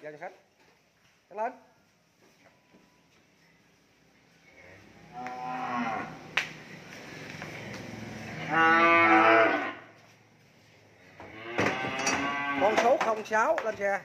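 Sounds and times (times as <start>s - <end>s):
cattle mooing: 5.1s - 6.2s, 8.2s - 9.9s, 11.2s - 12.8s.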